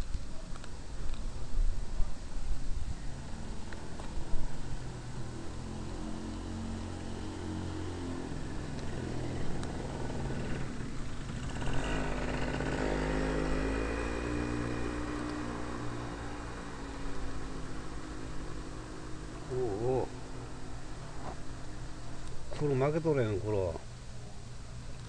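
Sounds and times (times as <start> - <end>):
vehicle engine passing: 3.2 - 23.0.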